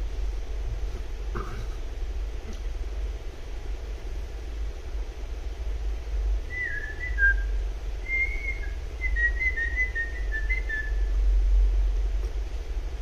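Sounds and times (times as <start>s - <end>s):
steady low hum: 0.0s - 13.0s
person whistling a tune: 8.1s - 11.0s.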